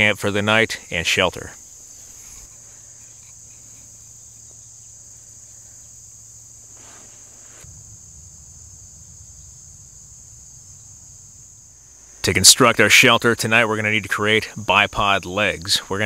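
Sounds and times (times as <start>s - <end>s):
insects trilling: 0.0s - 16.0s
faint rustle: 1.4s - 12.8s.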